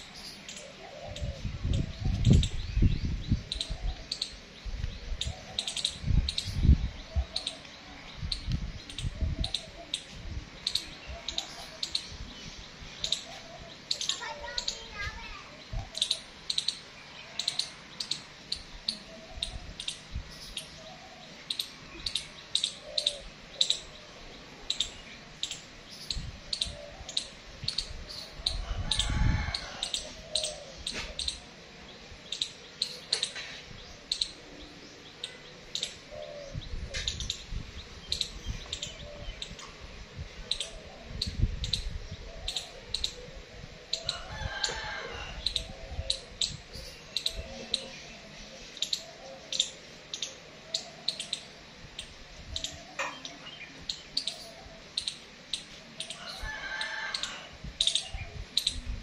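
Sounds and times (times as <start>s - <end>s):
squirrel chip calls: 3.3s - 4.4s, 5.1s - 12.3s, 13.0s - 31.6s, 32.2s - 39.7s, 40.4s - 59.0s
distant rooster crowing: 28.4s - 30.4s, 44.0s - 46.0s, 56.1s - 58.1s.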